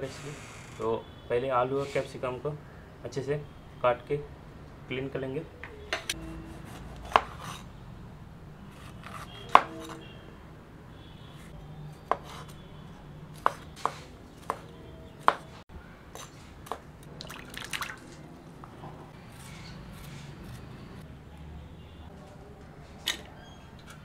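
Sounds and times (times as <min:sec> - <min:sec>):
knife chopping on wooden board: 0:06.5 - 0:07.6, 0:08.8 - 0:10.0, 0:12.0 - 0:12.5, 0:13.4 - 0:15.5.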